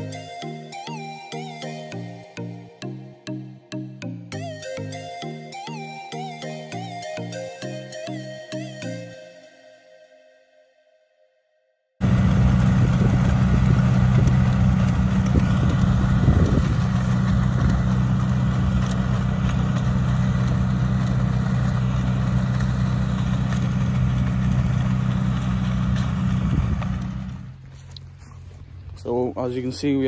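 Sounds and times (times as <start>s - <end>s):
spreader rotor throwing dung: 12.0s - 28.5s
tractor diesel engine running: 12.0s - 30.0s.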